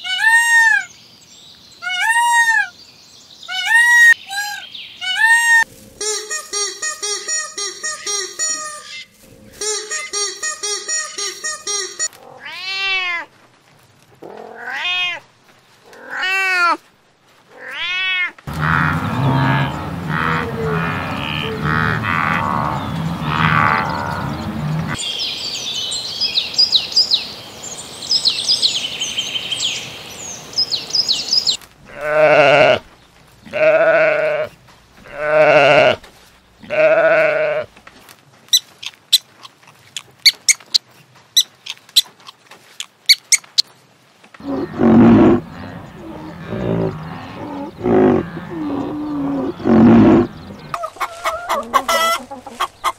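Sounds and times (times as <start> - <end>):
high chirping: 6.0 - 12.1
loud drawn-out animal calls: 17.5 - 25.0, 44.4 - 52.9
animal calls rising and falling: 18.5 - 25.0, 44.4 - 52.9
low rumbling noise: 18.5 - 25.0.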